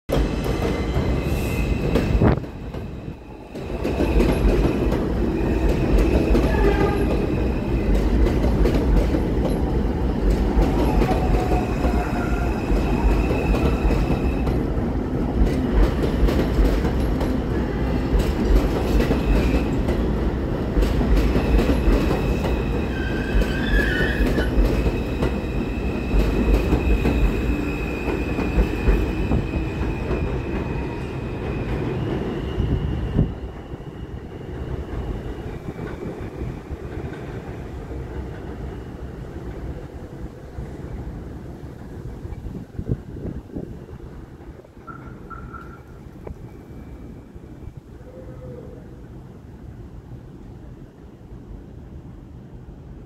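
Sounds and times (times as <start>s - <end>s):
subway train wheels rumbling: 0.1s - 53.0s
high wheel squeal: 22.3s - 31.1s.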